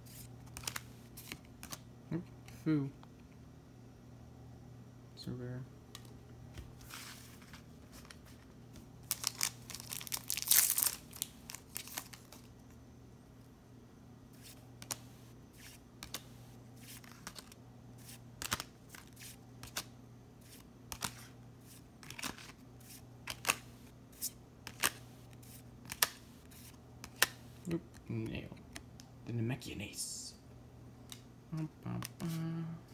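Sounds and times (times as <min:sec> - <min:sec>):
foil pack crinkling and tearing: 0:09.0 - 0:12.5.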